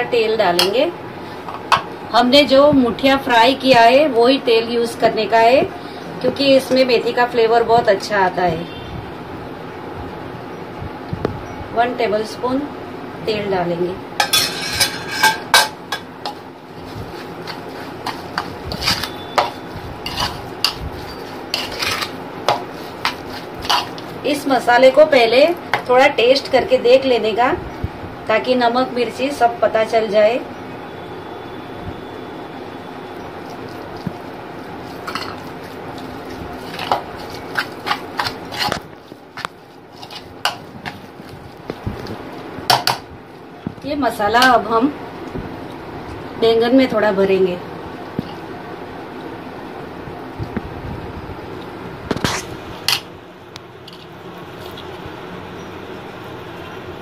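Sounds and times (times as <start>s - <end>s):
steady background hum: 0.0s - 57.0s
metal spoon mashing paste: 15.9s - 24.4s, 33.5s - 42.1s
soft scraping in bowl: 16.8s - 24.2s, 34.8s - 41.0s.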